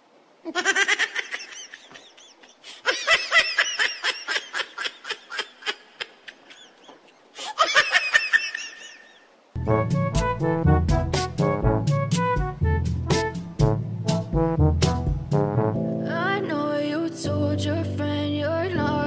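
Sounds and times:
high-pitched cackling laughter: 0:00.4 - 0:09.3.

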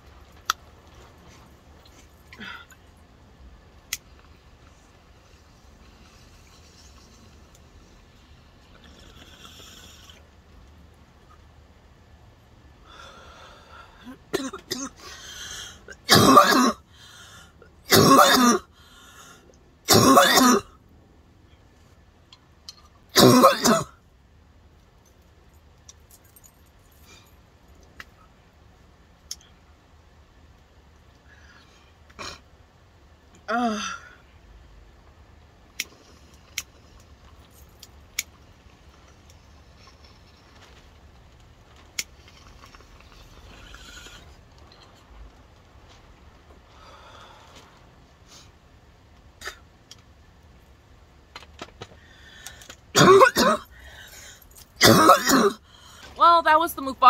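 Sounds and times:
woman coughing hard: 0:14.3 - 0:15.1, 0:16.0 - 0:16.8, 0:17.9 - 0:18.7, 0:19.9 - 0:20.7, 0:23.1 - 0:24.0, 0:53.0 - 0:53.7, 0:54.8 - 0:55.6.

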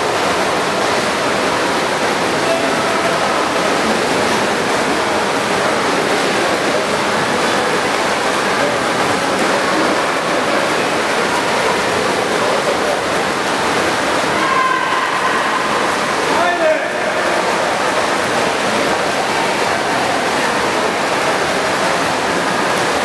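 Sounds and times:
swimmers splashing: 0:00.0 - 0:23.0
crowd shouting and cheering: 0:14.2 - 0:18.4.

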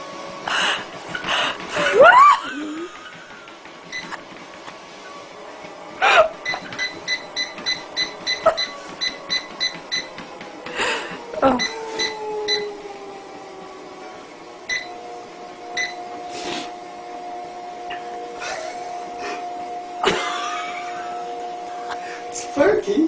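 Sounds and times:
treadmill motor whine: 0:00.0 - 0:23.0
treadmill console beeps: 0:00.9 - 0:05.4, 0:06.2 - 0:12.8, 0:14.6 - 0:16.3.

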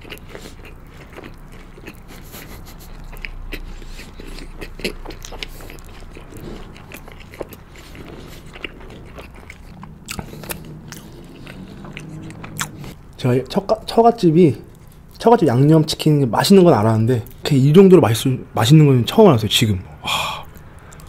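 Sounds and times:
person chewing with small clicks: 0:00.0 - 0:13.2, 0:20.4 - 0:21.0.

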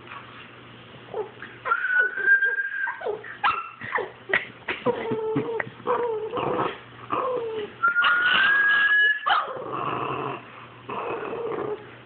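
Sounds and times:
dog yipping and whining: 0:01.1 - 0:04.2, 0:07.2 - 0:09.6.

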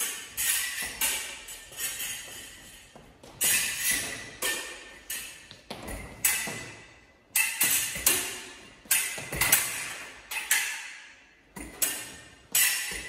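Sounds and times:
footwork thuds on floor: 0:05.5 - 0:06.8.

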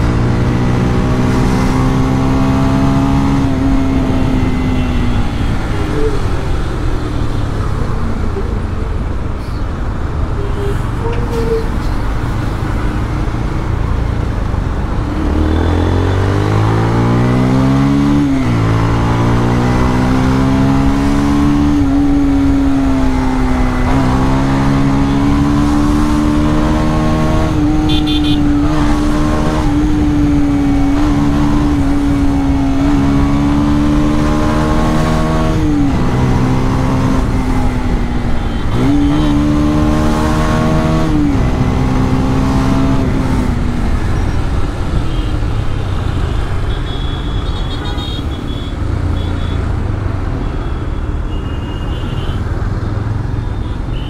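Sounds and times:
motorcycle accelerating: 0:00.0 - 0:08.4, 0:13.0 - 0:46.6
road and wind noise: 0:00.0 - 0:54.0.

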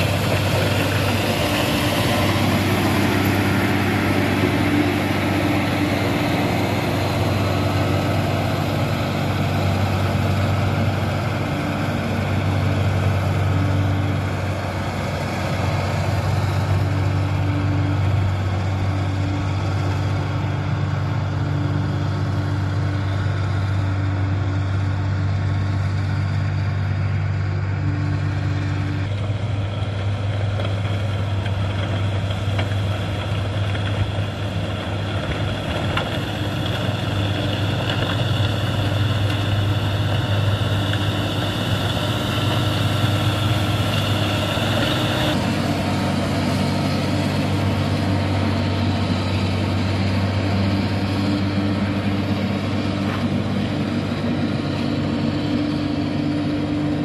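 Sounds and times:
blade pushing gravel: 0:00.0 - 0:17.4, 0:29.0 - 0:55.8
diesel engine under load: 0:00.0 - 0:57.0.

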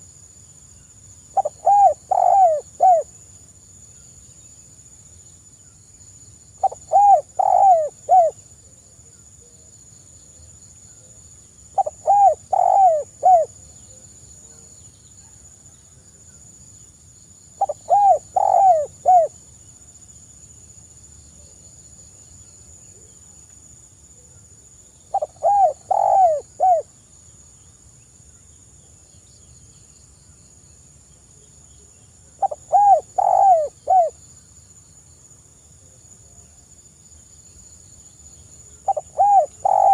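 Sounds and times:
high insect trill: 0:00.0 - 0:39.9
dove cooing: 0:01.4 - 0:03.1, 0:06.6 - 0:08.4, 0:11.8 - 0:13.5, 0:17.6 - 0:19.3, 0:25.1 - 0:26.9, 0:32.4 - 0:34.2, 0:38.8 - 0:39.9.

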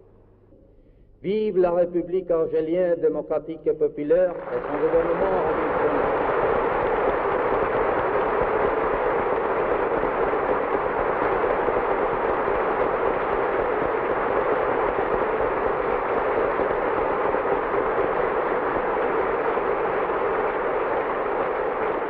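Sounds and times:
audience applauding: 0:04.4 - 0:22.0.

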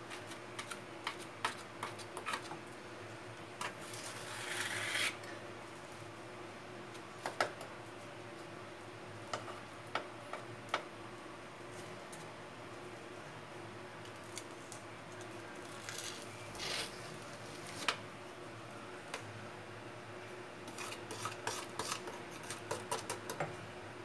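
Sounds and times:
faint steady hum: 0:00.0 - 0:24.0.

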